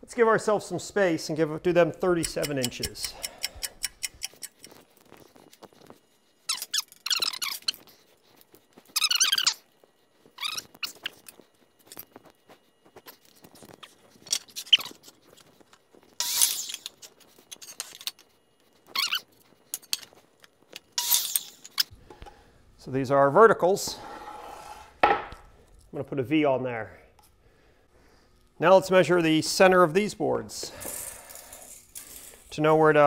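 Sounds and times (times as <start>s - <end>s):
lumber squeaks and scrapes: 5.7s - 20.0s, 23.8s - 25.0s.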